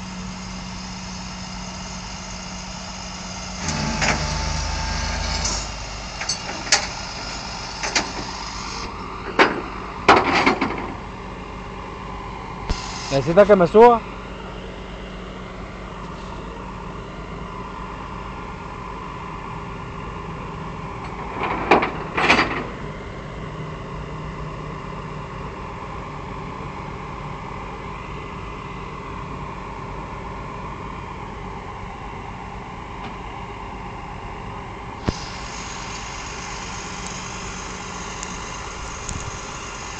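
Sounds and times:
vehicle engine idling: 0.0s - 10.1s, 31.1s - 39.9s.

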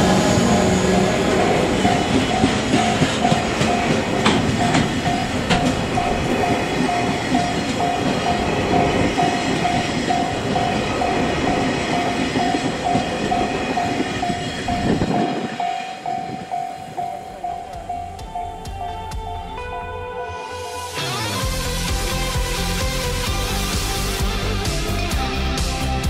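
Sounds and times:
train wheels clattering: 0.0s - 19.4s.

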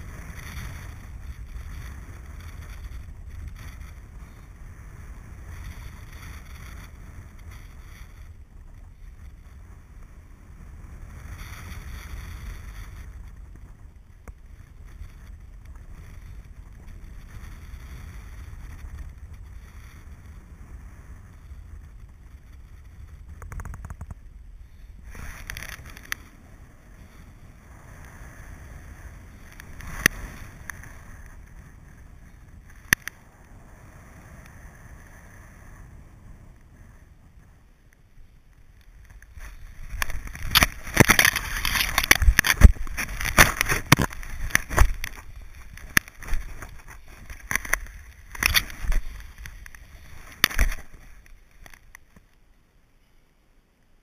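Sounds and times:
wind rushing over microphone: 0.0s - 52.3s.

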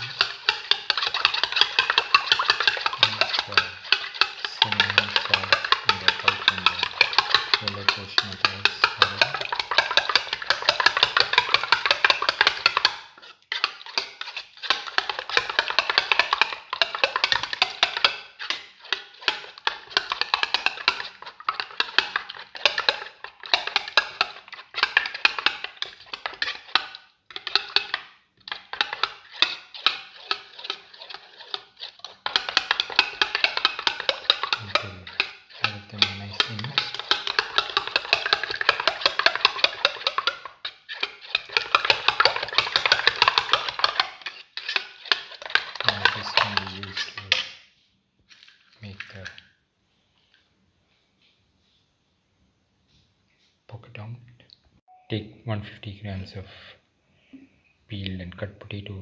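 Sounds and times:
metal spoon tapping ceramic plate: 0.1s - 13.0s, 32.3s - 40.4s, 44.7s - 47.4s.

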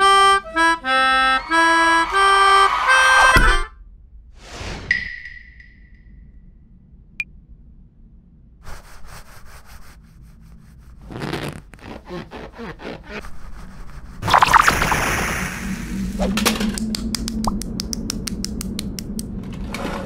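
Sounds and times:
swoosh with ringing tone: 4.4s - 7.2s
scratchy rubbing and scraping: 8.7s - 14.3s.

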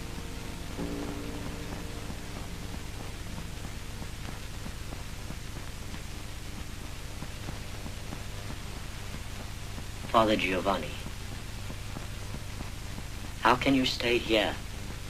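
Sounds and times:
low hum: 0.0s - 13.2s
faint crackles: 0.0s - 15.0s
steady hiss: 0.0s - 15.0s.

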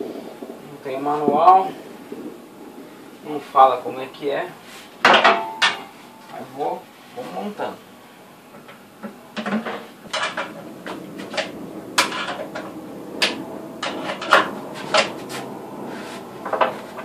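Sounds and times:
sheet metal parts clicking and clanking: 9.4s - 15.2s.

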